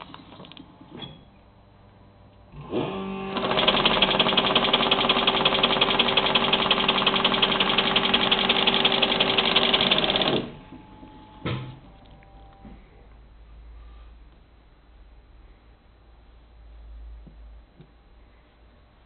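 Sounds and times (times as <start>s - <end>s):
paper counting machine rattling: 3.4s - 10.6s.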